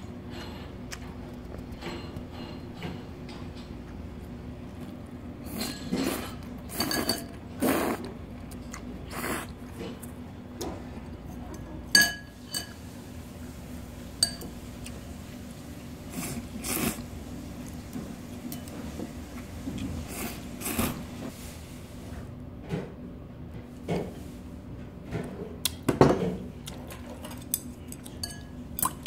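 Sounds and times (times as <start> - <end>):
dishes clinking: 5.5 - 7.4, 11.8 - 12.8, 14.2 - 14.6, 25.9 - 29.0.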